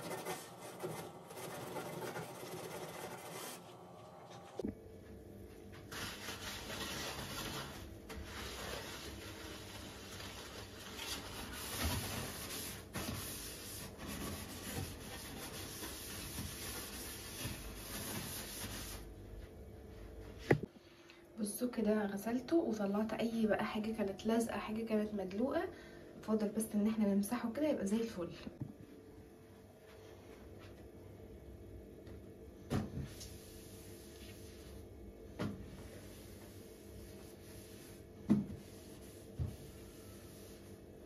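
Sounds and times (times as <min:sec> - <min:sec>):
sponge scrubbing metal surface: 0:00.0 - 0:03.6, 0:05.9 - 0:19.0, 0:35.8 - 0:40.8.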